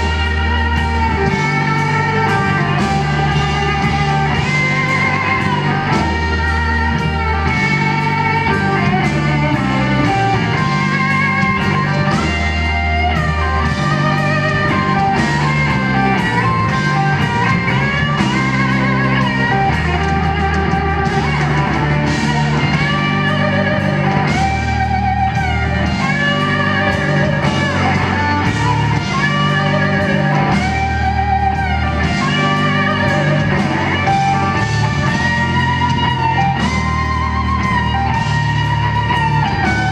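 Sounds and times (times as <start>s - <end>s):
bass notes: 0.0s - 39.9s
drums: 0.0s - 39.9s
electric guitar solo: 0.0s - 39.9s.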